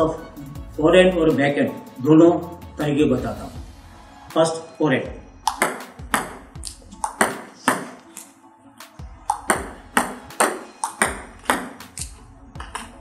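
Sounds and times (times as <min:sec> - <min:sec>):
table tennis ball pings: 0:05.4 - 0:06.4, 0:07.0 - 0:08.0, 0:09.3 - 0:12.9.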